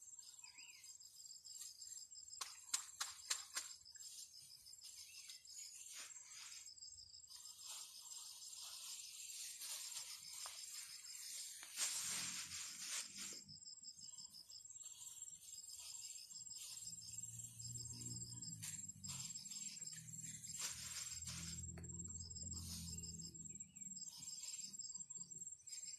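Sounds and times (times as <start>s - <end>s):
insects chirping: 0.0s - 25.9s
rustling: 7.3s - 13.5s, 18.5s - 21.8s.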